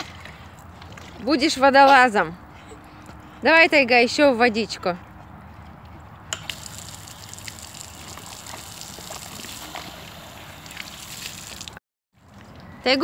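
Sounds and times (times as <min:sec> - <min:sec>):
dog lapping and splashing water: 0:06.5 - 0:11.8.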